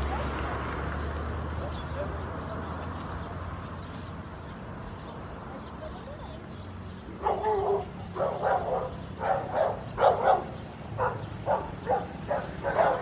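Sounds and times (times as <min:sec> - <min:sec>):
dog barking: 0:07.2 - 0:13.0.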